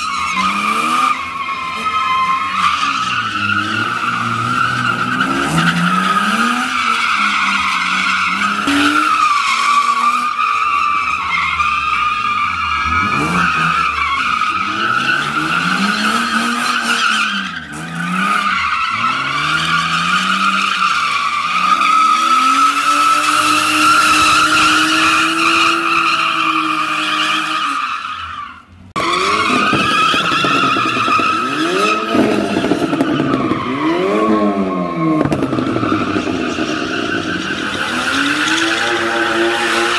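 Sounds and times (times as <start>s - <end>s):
tyre squeal: 0.0s - 39.9s
car engine revving: 29.0s - 39.9s.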